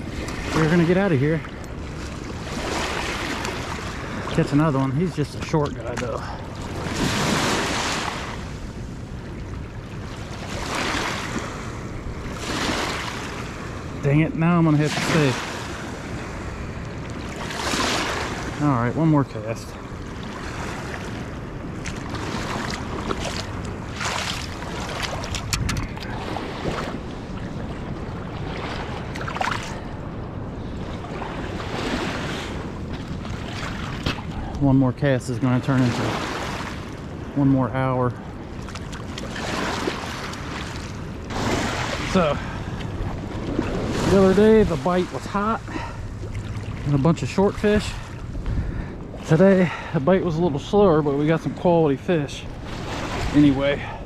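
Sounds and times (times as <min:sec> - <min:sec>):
wind rumble on microphone: 0:00.0 - 0:54.0
small waves lapping on pebbles: 0:00.1 - 0:04.6, 0:10.1 - 0:13.8, 0:20.2 - 0:27.0, 0:38.6 - 0:47.0
waves washing onto gravel: 0:14.7 - 0:15.7, 0:41.3 - 0:45.8
splashy swishes: 0:21.8 - 0:27.0.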